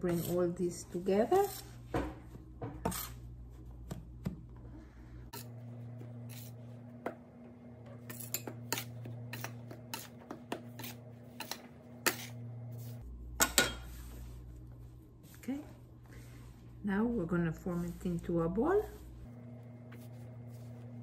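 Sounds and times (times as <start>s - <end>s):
bench scraper chopping dough: 8.0s - 12.4s.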